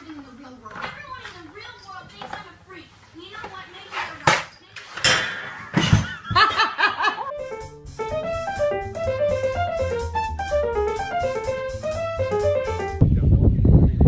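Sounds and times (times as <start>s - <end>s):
background music with bass: 7.3s - 13.1s.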